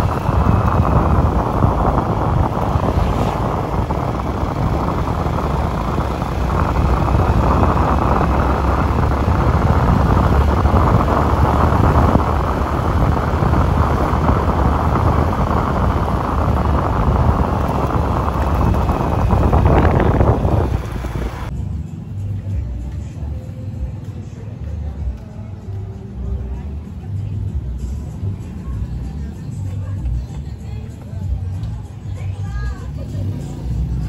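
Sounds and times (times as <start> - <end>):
wind buffeting microphone: 0.0 - 21.5
tyres on road: 0.0 - 34.0
vehicle engine running: 0.0 - 34.0.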